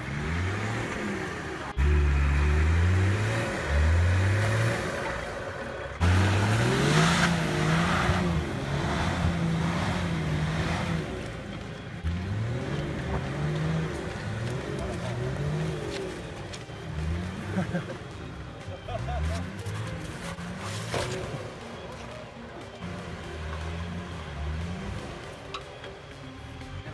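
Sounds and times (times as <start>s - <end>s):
engine revving hard: 0.0s - 18.0s
tyres rushing through snow: 0.0s - 26.9s.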